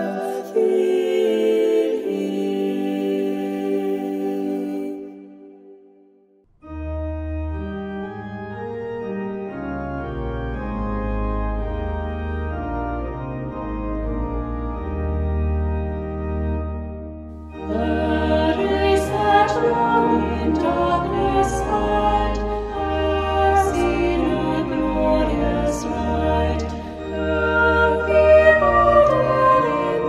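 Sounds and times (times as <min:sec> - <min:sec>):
voices singing a hymn: 0:00.0 - 0:05.8, 0:17.5 - 0:30.0
church organ playing chords: 0:06.6 - 0:30.0.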